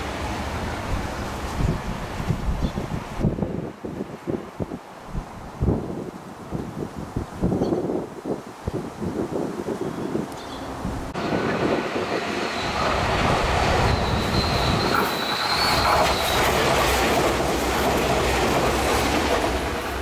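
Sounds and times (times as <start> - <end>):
train wheels on rails: 11.1 - 20.0.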